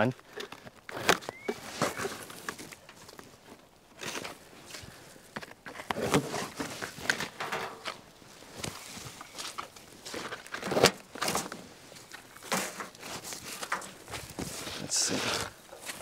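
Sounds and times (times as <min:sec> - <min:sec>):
paper rustling and scraping: 0:05.7 - 0:08.0.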